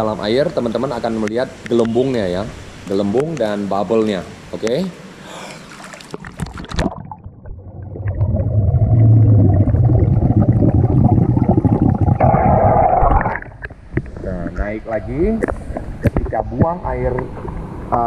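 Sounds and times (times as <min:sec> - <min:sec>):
water splashing: 0:05.5 - 0:13.9
underwater bubbling rumble: 0:06.2 - 0:14.2, 0:15.7 - 0:18.0.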